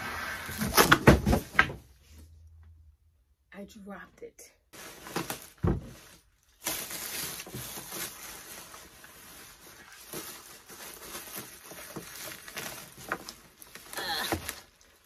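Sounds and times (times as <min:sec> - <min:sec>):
plastic bag crinkling: 0:04.8 - 0:15.0.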